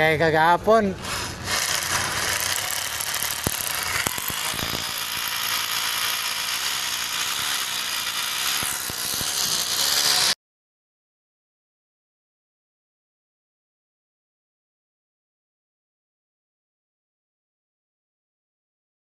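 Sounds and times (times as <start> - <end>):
hammer drill drilling into wall: 1.0 - 10.4.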